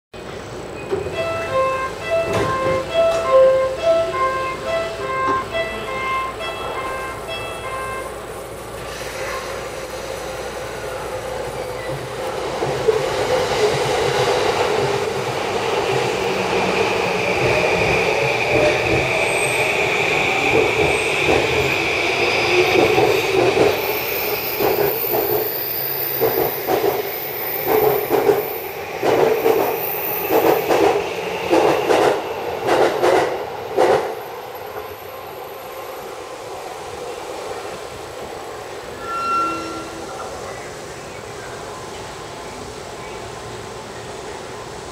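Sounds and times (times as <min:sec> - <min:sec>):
train wheels clacking over rail joints: 0:20.4 - 0:21.7, 0:22.6 - 0:23.9, 0:24.6 - 0:25.5, 0:26.1 - 0:34.2.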